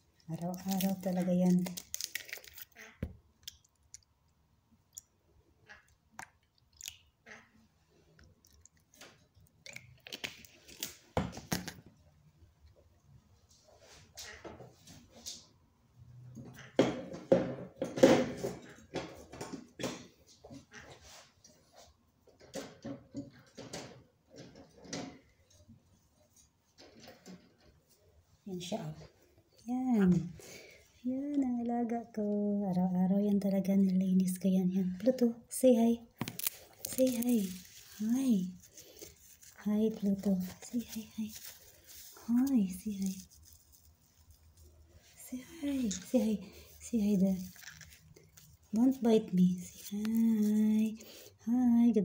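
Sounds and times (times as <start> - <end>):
plastic bottle crinkling: 0.2 - 3.1, 36.1 - 51.3.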